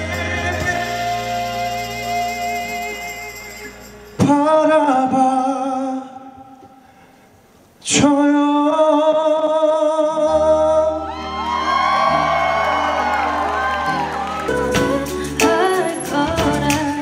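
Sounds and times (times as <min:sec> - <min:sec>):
band playing: 0:00.0 - 0:05.3, 0:11.0 - 0:17.0
man singing with vibrato: 0:00.0 - 0:06.9, 0:07.8 - 0:11.3.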